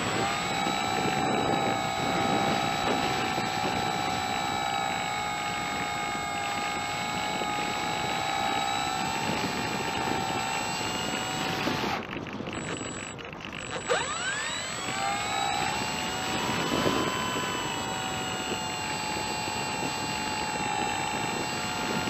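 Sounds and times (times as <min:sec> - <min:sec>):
electric motor and propeller whining: 0:00.0 - 0:22.0.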